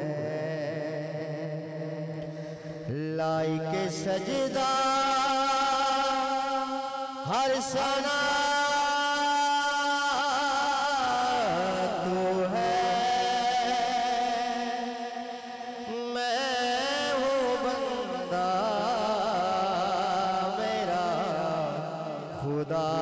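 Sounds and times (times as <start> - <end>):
man singing over a pa: 0.0 - 23.0.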